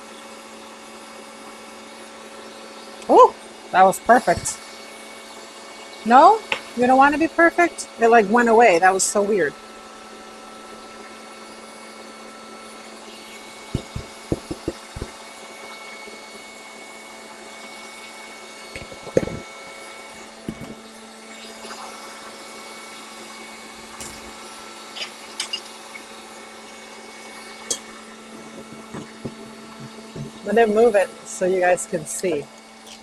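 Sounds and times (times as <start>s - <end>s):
stand mixer motor running: 0.0s - 31.3s
light knocks of containers: 13.8s - 15.2s.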